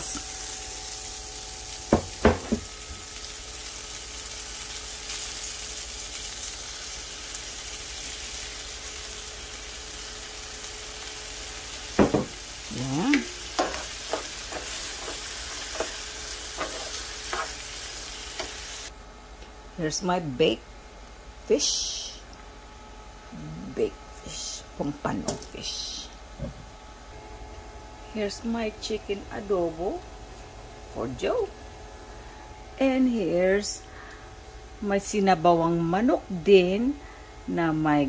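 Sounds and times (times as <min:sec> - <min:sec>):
beans sizzling in a frying pan: 0:00.0 - 0:18.9
spatula scraping a pan: 0:13.6 - 0:17.8.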